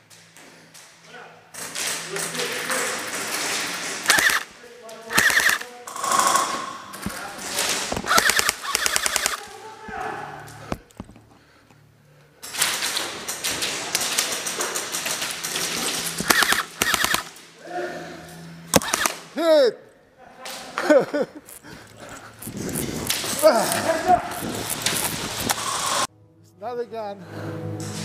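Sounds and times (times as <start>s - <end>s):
airsoft guns firing bursts: 2.9s - 6.5s, 8.0s - 9.5s, 12.6s - 17.4s, 18.7s - 19.3s.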